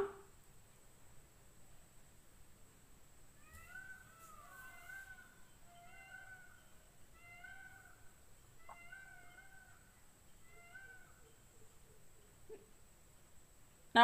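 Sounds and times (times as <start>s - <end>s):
faint high-pitched animal calls: 3.3s - 12.9s.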